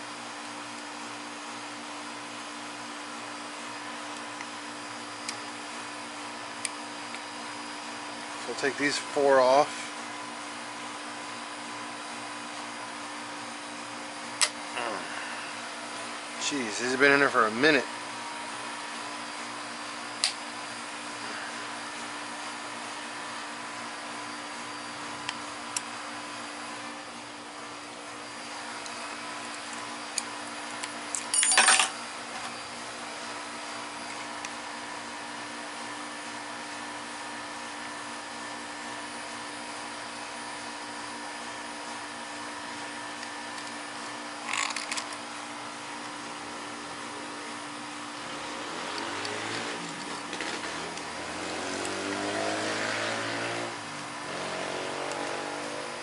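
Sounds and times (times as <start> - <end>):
machine hum: 39.5 - 56.0.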